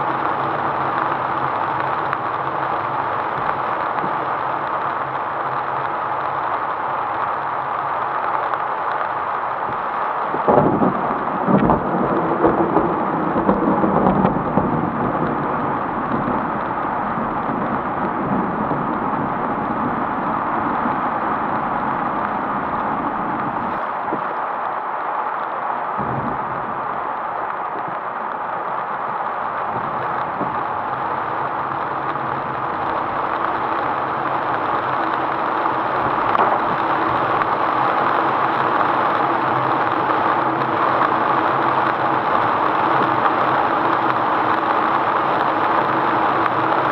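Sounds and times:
thunder rumbling: 0.0 - 24.4, 25.5 - 46.9
steady rain hiss: 0.0 - 46.9
tyres on wet road: 0.0 - 46.9
engine hum: 29.2 - 46.9.

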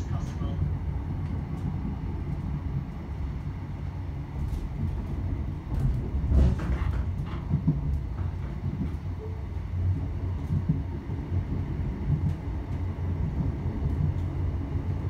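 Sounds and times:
train wheels rumbling on rails: 0.0 - 15.0
train carriage jolt with knocks: 4.3 - 9.4.

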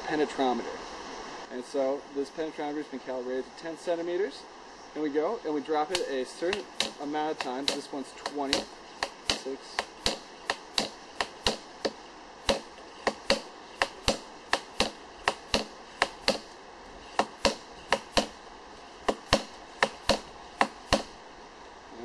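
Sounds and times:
weight knocking on steel rod: 5.9 - 16.5, 17.1 - 18.4, 19.0 - 21.2.

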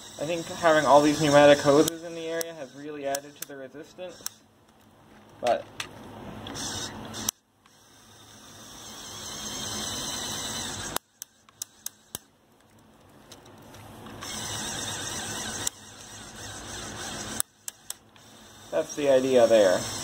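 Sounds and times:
small electric motor running: 0.0 - 4.4, 6.4 - 12.3, 14.2 - 20.0
sharp clicks: 1.1 - 3.6, 4.2 - 4.8, 10.2 - 18.4.

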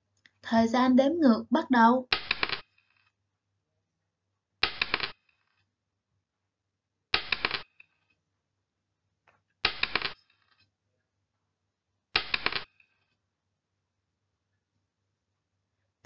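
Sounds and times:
rattle of timer clicks: 2.1 - 3.1, 4.6 - 5.6, 7.1 - 8.1, 9.6 - 10.6, 12.2 - 13.0.

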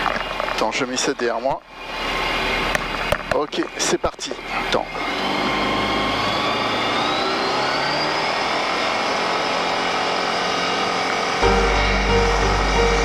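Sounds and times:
light aircraft engine and propeller: 0.0 - 13.0
background music: 11.4 - 13.0.

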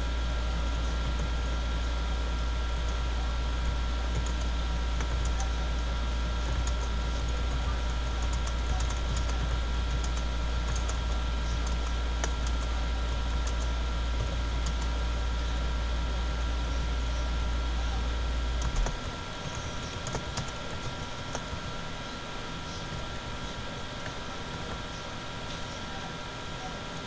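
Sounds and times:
low hum and hiss: 0.0 - 27.0.

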